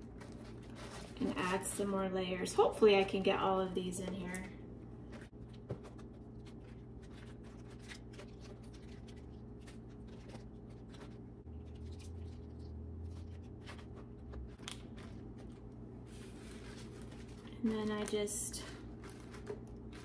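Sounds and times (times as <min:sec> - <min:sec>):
steady low hum: 0:00.0 - 0:20.0
lettuce leaves rustling: 0:05.1 - 0:20.0.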